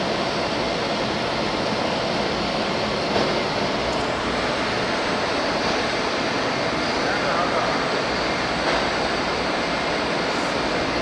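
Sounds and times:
industrial machinery roaring: 0.0s - 11.0s.

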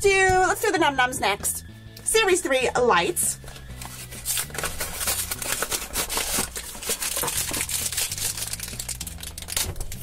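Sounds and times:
plastic wrapper crackling: 3.6s - 10.0s
cardboard box tearing: 3.8s - 9.8s.

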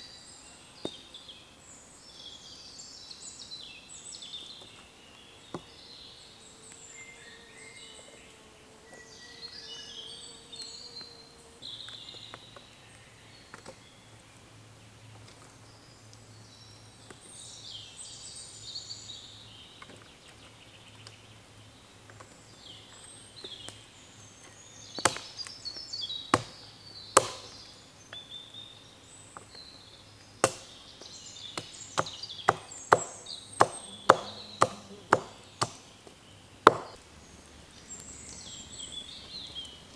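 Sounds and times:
birds singing: 0.0s - 39.9s
knife chopping a stick: 25.0s - 25.3s, 26.3s - 26.6s, 27.2s - 27.6s, 30.4s - 30.8s, 31.6s - 35.9s, 36.6s - 37.0s.

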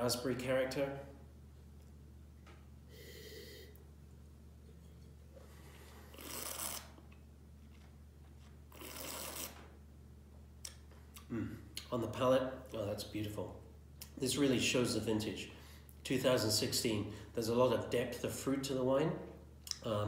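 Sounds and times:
air drawn through wine: 2.8s - 3.8s
person sniffing: 2.9s - 3.8s
sipping: 5.6s - 7.2s, 8.7s - 9.6s.

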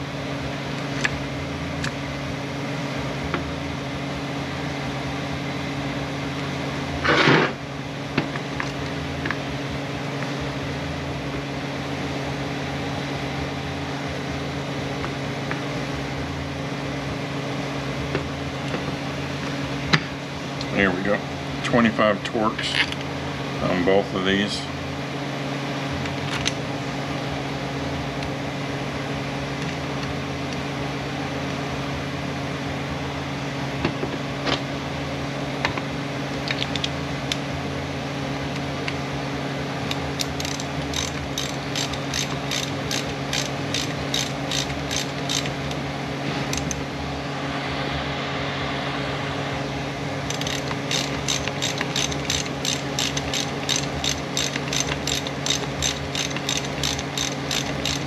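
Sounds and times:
steady low hum: 0.0s - 58.0s
hand ratchet clicking: 39.8s - 45.6s, 50.3s - 58.0s.

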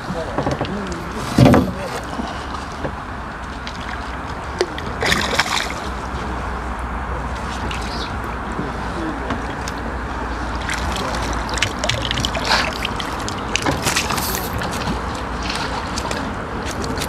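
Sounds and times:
water sloshing in a net: 0.0s - 17.0s
fish splashing at surface: 3.5s - 6.2s, 9.4s - 17.0s.

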